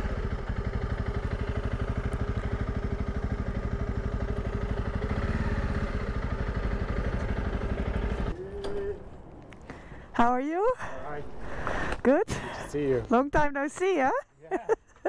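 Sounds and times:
motorcycle engine running low revs: 0.0 - 8.4.

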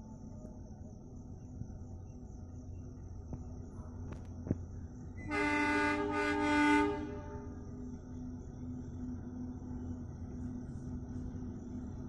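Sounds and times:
diesel locomotive horn blast: 5.2 - 7.6.

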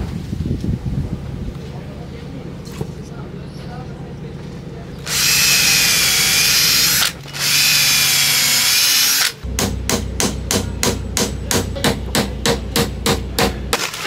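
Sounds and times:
cordless drill boring into wood: 5.0 - 9.4.

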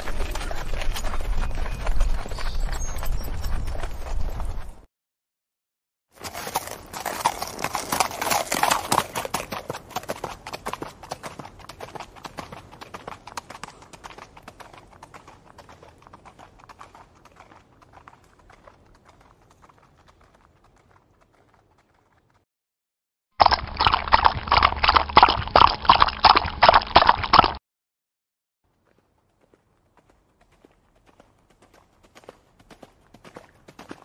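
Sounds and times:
horse hoofbeats: 0.0 - 4.9, 6.2 - 22.4, 28.9 - 34.0.

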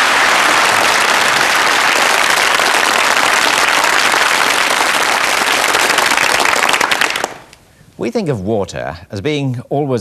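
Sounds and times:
audience applauding: 0.0 - 7.5.

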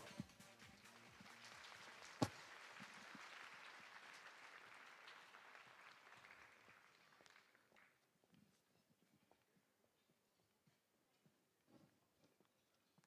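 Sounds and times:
faint audience applause: 0.0 - 8.2.

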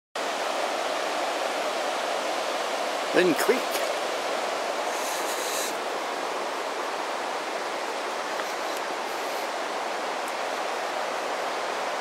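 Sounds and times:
creek rushing over boulders: 0.2 - 12.0
brief high hiss: 4.9 - 5.8.

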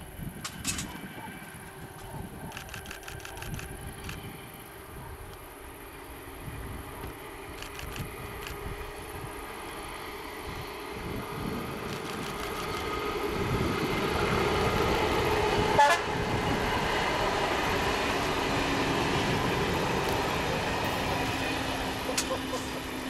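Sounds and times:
train rolling rumble: 0.0 - 23.0
train horn toot: 15.7 - 16.2, 22.1 - 23.0.

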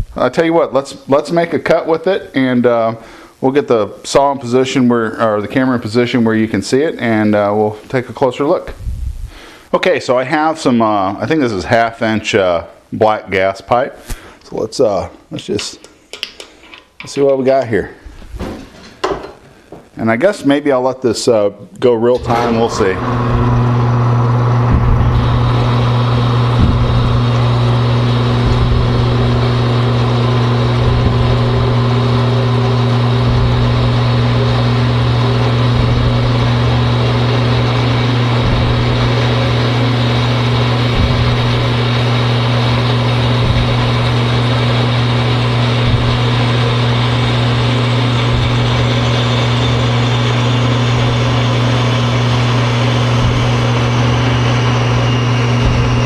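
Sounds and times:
electric motor hum: 22.2 - 56.0.

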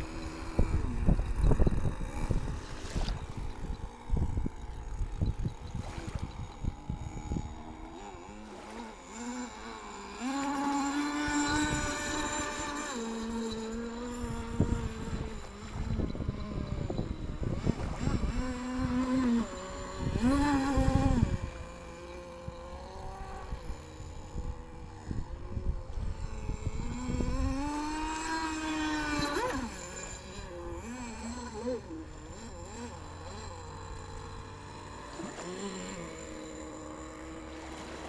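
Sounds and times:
wind rumbling on microphone: 0.0 - 8.2, 10.8 - 32.5
model boat engine buzzing: 0.0 - 38.0.

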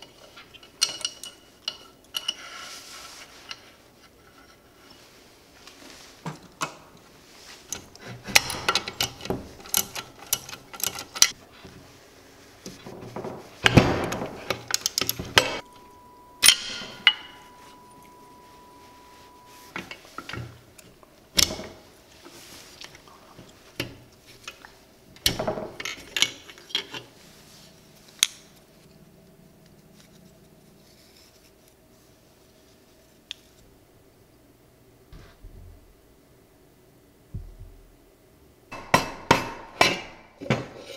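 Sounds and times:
metal parts and tools clinking: 0.0 - 2.5, 7.7 - 11.4, 13.2 - 21.8.

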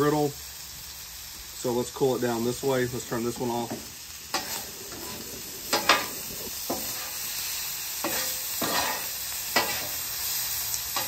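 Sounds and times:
food sizzling on griddle: 0.0 - 11.0
metal spatula scraping griddle: 3.4 - 11.0.

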